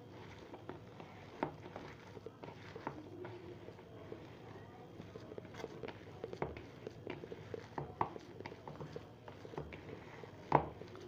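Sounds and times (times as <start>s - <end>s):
hand squishing mashed potato: 0.0s - 11.0s.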